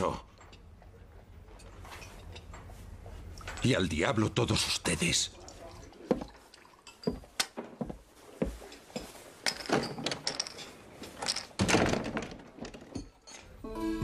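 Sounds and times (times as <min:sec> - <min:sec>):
wooden knocks and thuds: 0:11.6 - 0:13.2.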